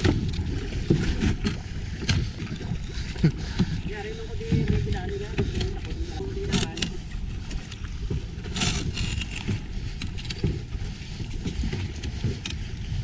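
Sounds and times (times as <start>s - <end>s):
water slapping against boat hull: 0.0s - 13.0s
wind buffeting microphone: 0.0s - 13.0s.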